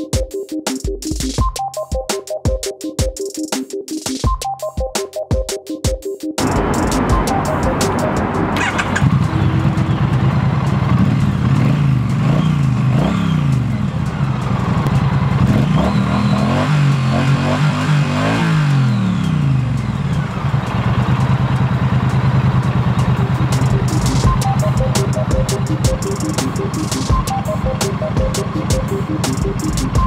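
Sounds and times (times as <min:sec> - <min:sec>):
motorcycle engine revving: 0:06.4 - 0:30.0.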